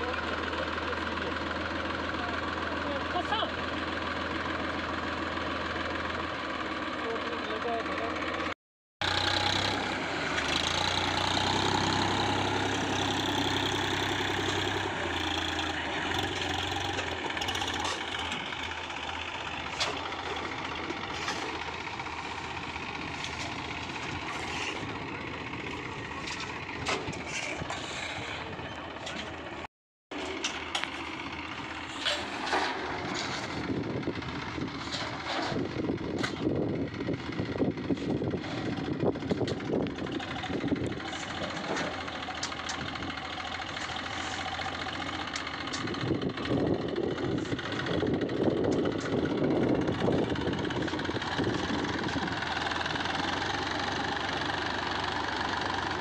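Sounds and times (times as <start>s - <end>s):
tractor diesel engine under load: 0.0s - 56.0s
shovels scraping dirt: 21.0s - 21.6s, 23.1s - 25.0s, 26.2s - 29.4s, 31.8s - 33.6s.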